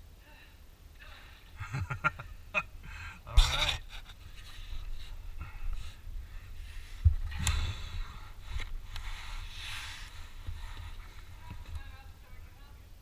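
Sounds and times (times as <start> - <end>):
steady low rumble: 0.0 - 13.0
person breathing hard: 2.8 - 3.4, 4.5 - 11.4.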